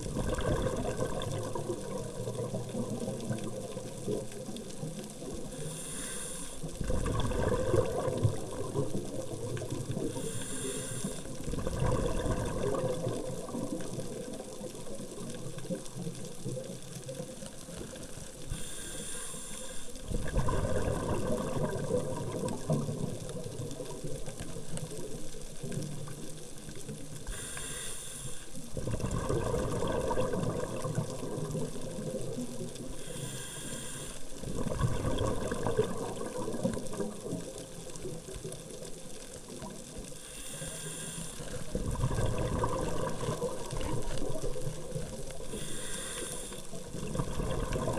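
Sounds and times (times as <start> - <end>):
exhaled bubbles gurgling: 0.0 - 47.9
regulator inhale hiss: 5.4 - 6.7, 10.0 - 11.4, 18.0 - 20.1, 27.2 - 28.7, 32.8 - 34.5, 40.1 - 41.7, 45.3 - 46.9.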